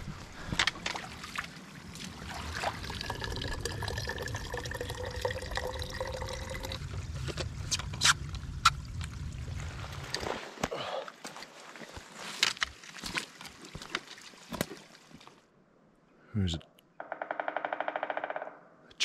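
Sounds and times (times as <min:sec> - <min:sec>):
water trickling into plastic bottle: 0:00.7 - 0:10.6.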